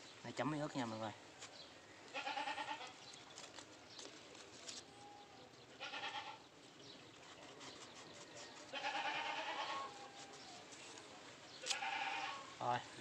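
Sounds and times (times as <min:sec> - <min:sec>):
livestock bleating: 0:02.1 - 0:03.0, 0:05.0 - 0:06.5, 0:08.7 - 0:10.4, 0:11.6 - 0:12.5.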